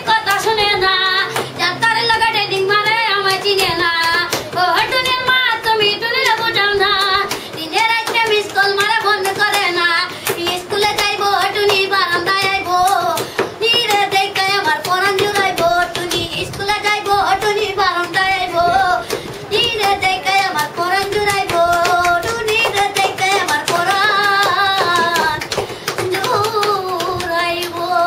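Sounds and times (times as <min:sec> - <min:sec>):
boy singing unaccompanied: 0:00.0 - 0:28.0
hand taps: 0:06.2 - 0:18.3, 0:19.0 - 0:27.9.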